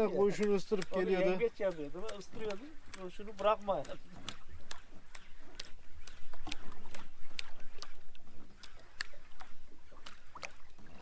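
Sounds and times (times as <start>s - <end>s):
waves slapping against boat hull: 0.0s - 11.0s.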